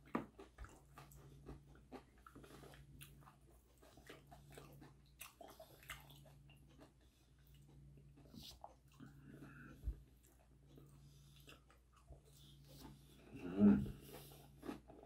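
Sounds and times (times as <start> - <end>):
crunching and chewing: 0.0 - 15.0
low steady hum: 0.0 - 15.0.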